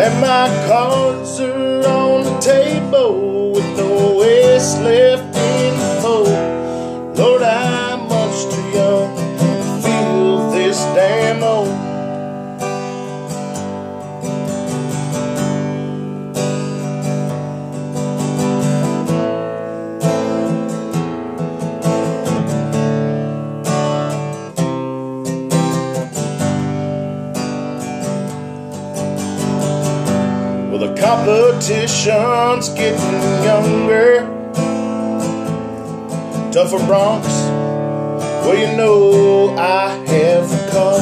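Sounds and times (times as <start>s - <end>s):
man singing: 0.0s - 12.4s, 30.5s - 35.4s, 36.1s - 41.0s
acoustic guitar strummed: 0.0s - 41.0s.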